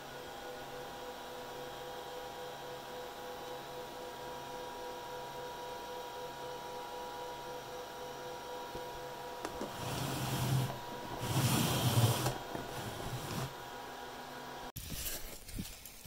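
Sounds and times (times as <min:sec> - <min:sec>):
cardboard box scraping and rustling: 0:09.7 - 0:13.6.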